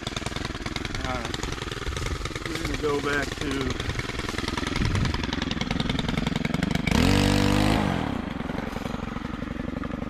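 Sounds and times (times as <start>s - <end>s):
brushcutter engine revving: 0.0s - 10.0s.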